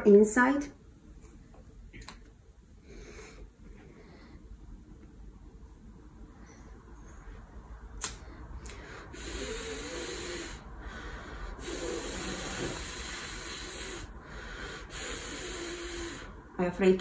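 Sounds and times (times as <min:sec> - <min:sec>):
lighter click: 0:08.0 - 0:08.2
breath hissing through mask: 0:08.6 - 0:16.4.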